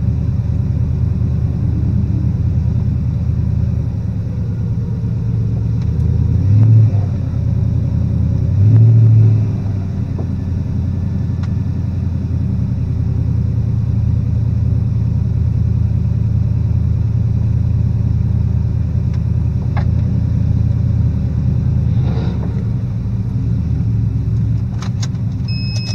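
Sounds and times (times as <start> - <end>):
car engine rumbling: 0.0 - 25.9.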